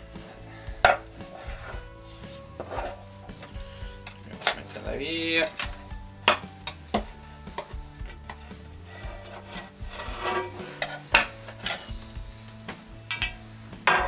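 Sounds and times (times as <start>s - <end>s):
soft background music: 0.0s - 14.0s
metal knocking on wood: 0.8s - 1.1s
pizza cutter scraping metal pan: 0.9s - 3.6s, 8.2s - 12.0s.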